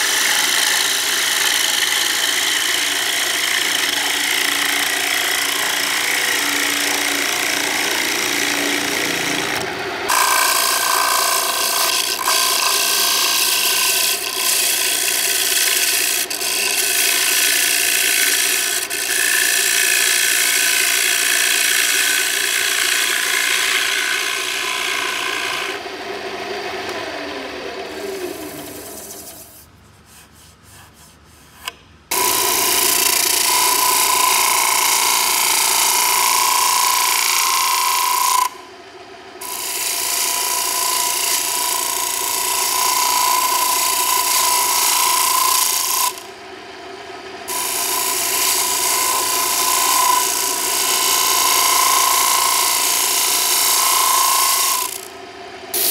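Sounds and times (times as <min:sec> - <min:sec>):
wood lathe running: 0:00.0 - 0:29.4, 0:32.1 - 0:38.6, 0:39.4 - 0:46.3, 0:47.5 - 0:55.2
gouge scraping spinning wood: 0:39.5 - 0:46.2, 0:47.5 - 0:55.1.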